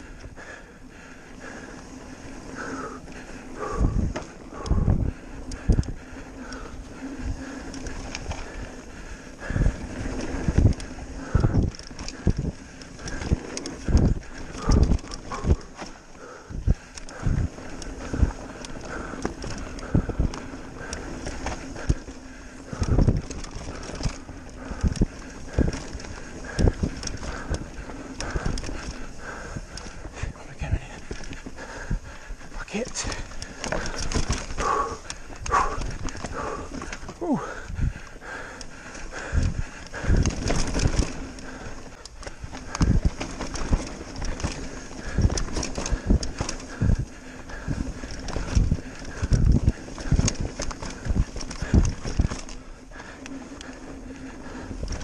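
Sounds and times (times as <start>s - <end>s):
mountain bike rattling over bumps: 0.0s - 55.0s
steady rushing noise: 0.0s - 55.0s.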